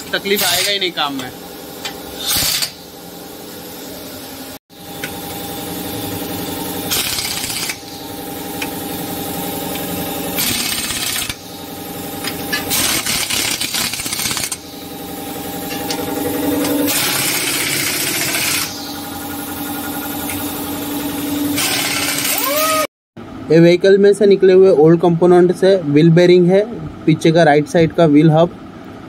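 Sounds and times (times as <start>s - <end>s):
impact wrench whine: 0.0s - 3.7s, 4.7s - 22.9s
impact wrench rapid hammering: 0.4s - 2.8s, 6.9s - 8.0s, 10.4s - 11.6s, 12.2s - 14.7s, 15.7s - 18.8s, 21.6s - 22.4s.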